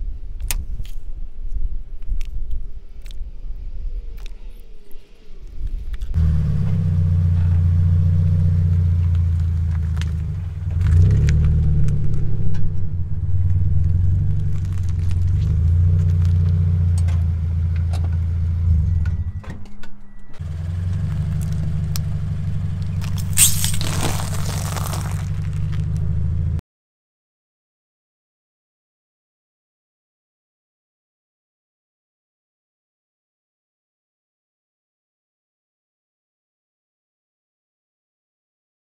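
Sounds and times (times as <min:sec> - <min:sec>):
car engine humming: 0:06.1 - 0:26.6
tyre crunching crackers: 0:09.2 - 0:12.2, 0:13.4 - 0:16.6, 0:22.9 - 0:26.2.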